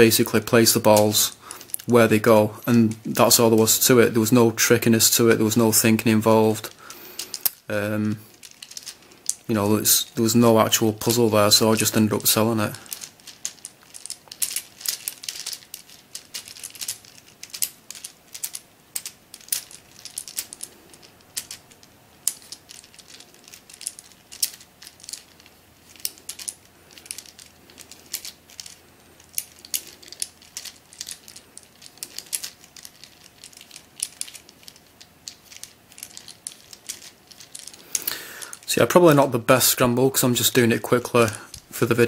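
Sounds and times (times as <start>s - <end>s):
plastic puzzle clicks and clacks: 8.4s - 9.5s, 10.6s - 39.2s.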